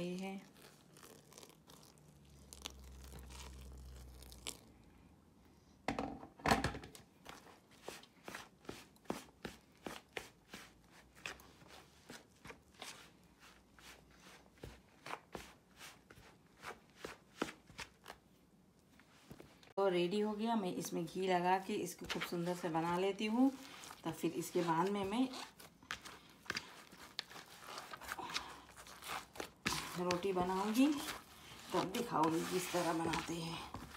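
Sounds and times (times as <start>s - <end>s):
dough squeezed in plastic bowl: 0.0s - 4.9s, 22.6s - 33.9s.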